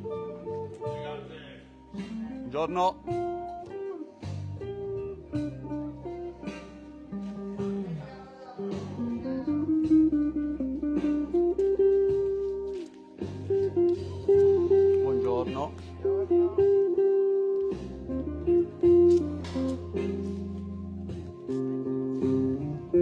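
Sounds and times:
acoustic guitar through speakers: 0.0s - 23.0s.

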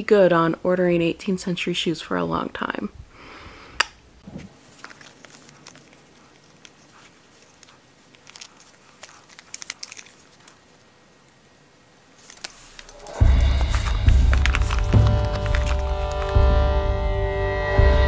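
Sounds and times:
metal buckle clicks and rustles: 4.6s - 11.4s, 12.1s - 16.5s.

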